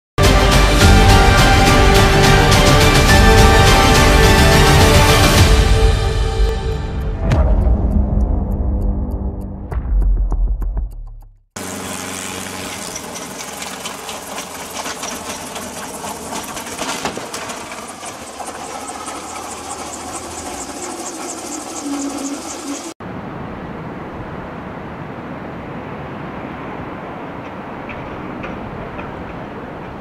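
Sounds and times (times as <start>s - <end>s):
jet engines rushing: 11.6s - 29.0s
helicopter engine and rotor rattle: 11.7s - 23.0s.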